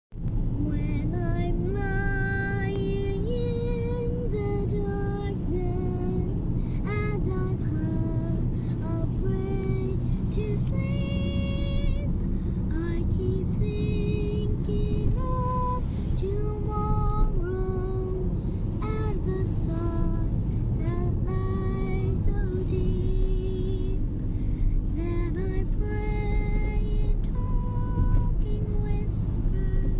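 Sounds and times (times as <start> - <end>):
car driving rumble: 0.2 - 29.9.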